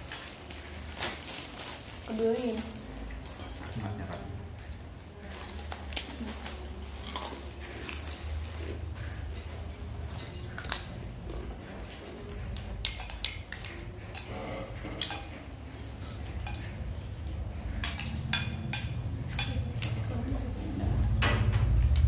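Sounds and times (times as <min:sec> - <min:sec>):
spoons and plates clinking: 0:12.8 - 0:16.8, 0:17.7 - 0:20.0
steady low rumble: 0:16.8 - 0:22.0.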